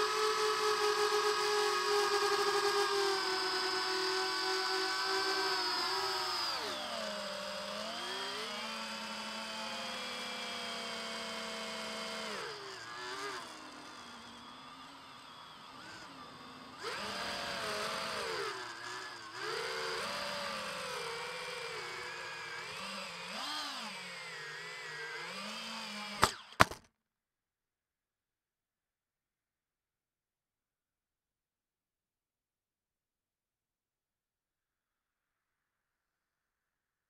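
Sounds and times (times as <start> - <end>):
quadcopter motors whining: 0.0 - 26.8.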